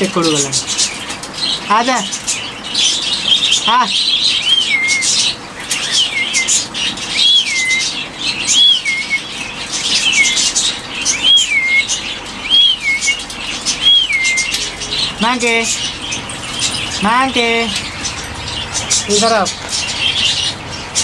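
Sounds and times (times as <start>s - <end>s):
birds chirping: 0.0s - 21.0s
parrot whistled call: 4.4s - 15.0s.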